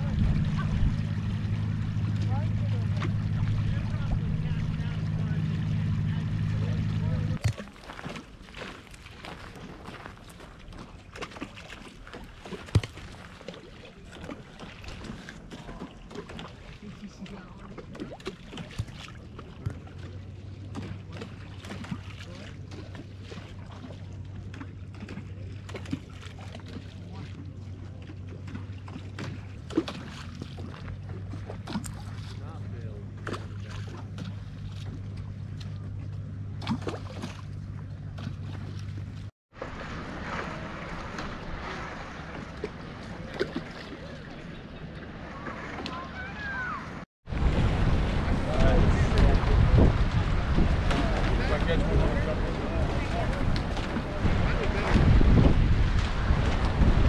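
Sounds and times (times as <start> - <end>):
wind rumble on microphone: 0.0 - 7.4, 46.9 - 57.0
water moving along gravel shore: 0.0 - 57.0
wind: 0.0 - 57.0.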